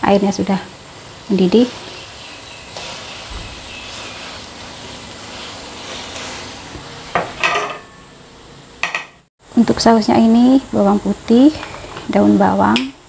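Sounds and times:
water boiling in a wok: 0:00.0 - 0:08.7
plate put down on counter: 0:07.2 - 0:07.9.

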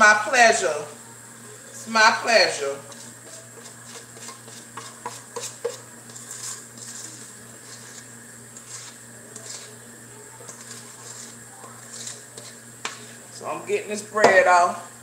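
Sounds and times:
utensil scraping a bowl: 0:01.6 - 0:13.3.

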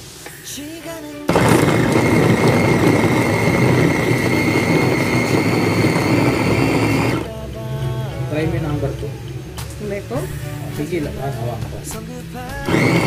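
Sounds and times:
food chopper motor whining: 0:01.3 - 0:07.3, 0:12.6 - 0:13.0.

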